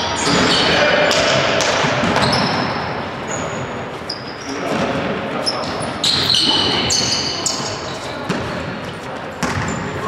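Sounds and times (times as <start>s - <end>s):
shoe squeaks: 0.0s - 0.8s, 2.1s - 8.4s, 9.3s - 10.0s
basketball bouncing on floor: 8.3s - 8.5s, 9.4s - 9.9s.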